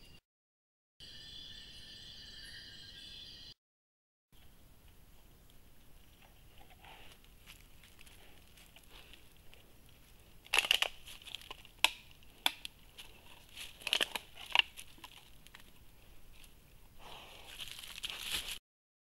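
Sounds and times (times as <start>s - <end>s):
pig rustling in dry leaves: 6.9s - 10.1s, 16.3s - 18.6s.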